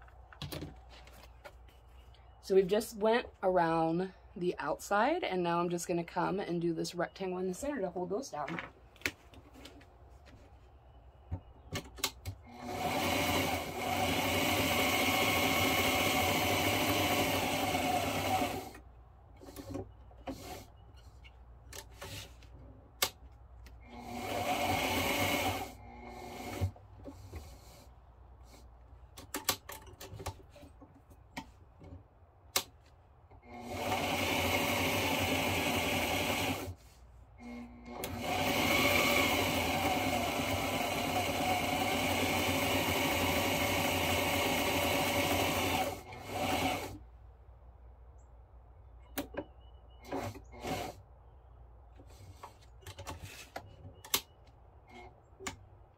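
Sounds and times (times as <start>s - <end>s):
sewing machine stitching: 12.4s - 18.8s, 23.9s - 27.9s, 33.4s - 36.8s, 37.4s - 47.0s, 50.0s - 51.0s.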